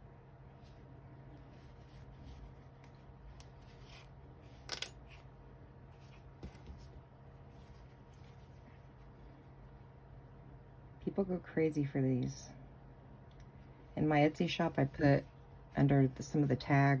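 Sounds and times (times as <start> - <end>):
low steady hum: 0.0 - 17.0
fingers rustling yarn: 0.4 - 10.1.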